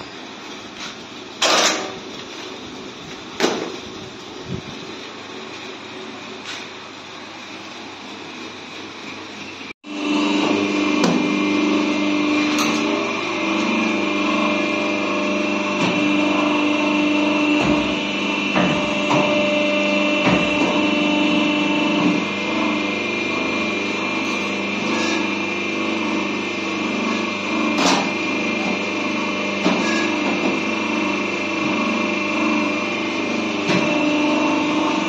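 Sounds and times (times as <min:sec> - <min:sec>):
stitching machine motor whine: 0:09.8 - 0:35.0.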